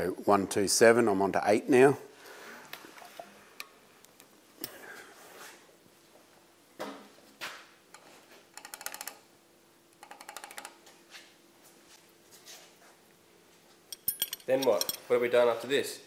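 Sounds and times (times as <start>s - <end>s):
metallic clicks and knocks: 8.0s - 9.2s, 10.0s - 10.8s, 13.9s - 15.1s.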